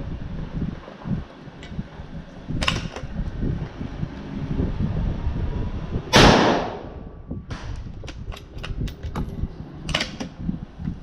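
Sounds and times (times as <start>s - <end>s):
rifle shot echoing: 6.2s - 6.9s.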